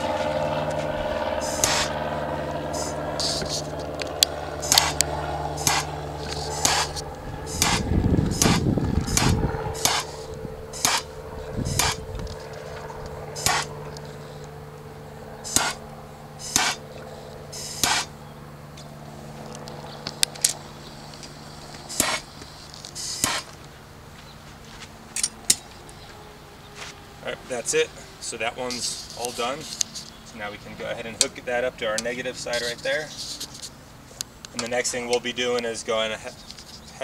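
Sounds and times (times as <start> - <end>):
gas torch flame hum: 0.0 - 24.0
short hissing bursts: 2.7 - 3.6, 5.6 - 11.1, 16.4 - 18.1, 21.9 - 23.5.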